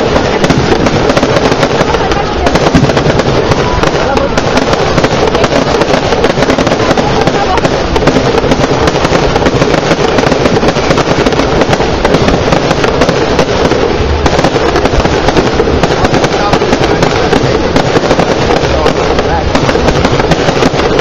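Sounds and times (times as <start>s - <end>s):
fireworks bangs and crackles: 0.0s - 21.0s.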